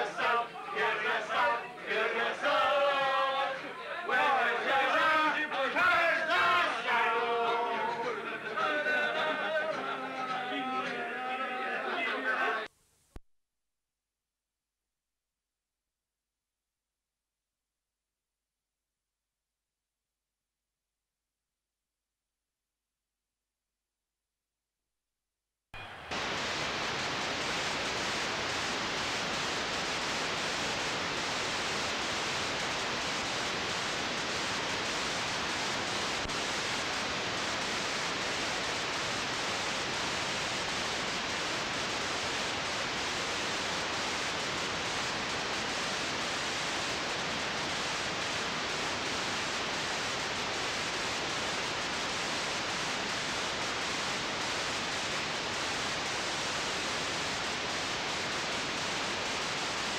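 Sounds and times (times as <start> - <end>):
tape hiss: 0.0 - 13.2, 25.8 - 59.9.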